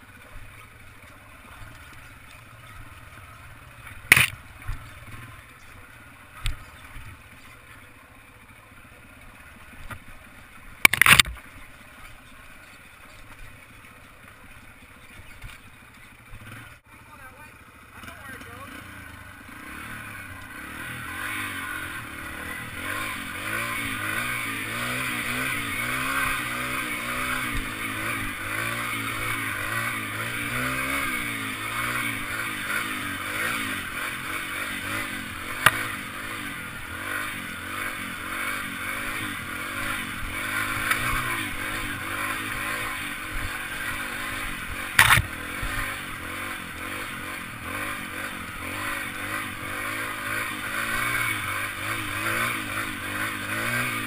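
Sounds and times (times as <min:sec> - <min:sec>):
motorbike engine revving: 0:00.0 - 0:13.7, 0:14.4 - 0:54.0
sharp knocks: 0:45.0 - 0:45.3.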